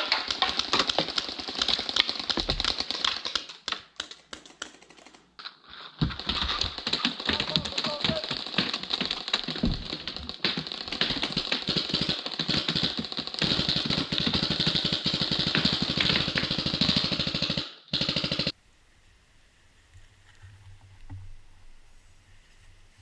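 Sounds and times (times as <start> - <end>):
rapid paintball fire: 0.0 - 5.2, 6.0 - 18.6.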